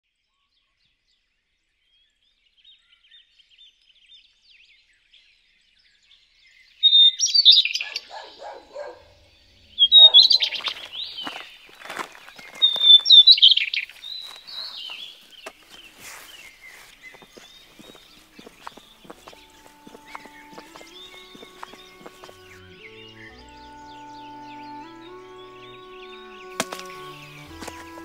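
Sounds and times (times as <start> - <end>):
songbird singing: 6.1 - 28.0
faint sparse chirping: 6.9 - 22.6.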